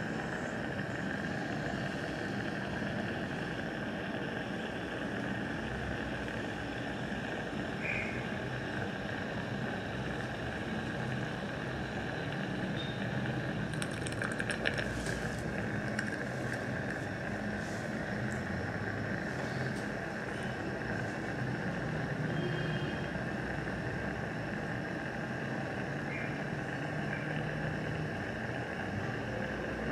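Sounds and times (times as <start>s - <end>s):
dental equipment humming: 0.0s - 29.9s
crackling clicks: 13.6s - 17.6s.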